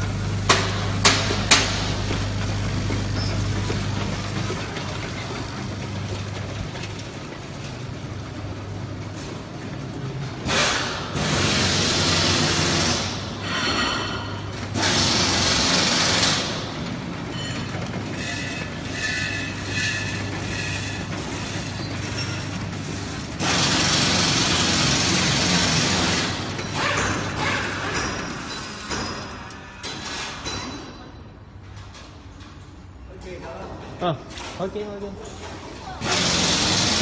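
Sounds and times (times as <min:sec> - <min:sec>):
machine humming: 0:14.4 - 0:29.7.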